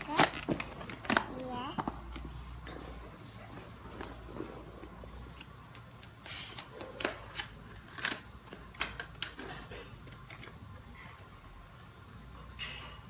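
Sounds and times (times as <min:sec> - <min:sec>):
toy packaging clicks and crackles: 0:00.0 - 0:02.3, 0:04.8 - 0:10.9.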